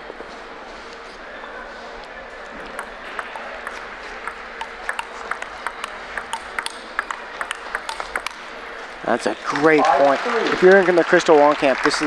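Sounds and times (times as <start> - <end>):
arena background noise: 0.0 - 12.0
table tennis ball clicking: 2.6 - 8.5.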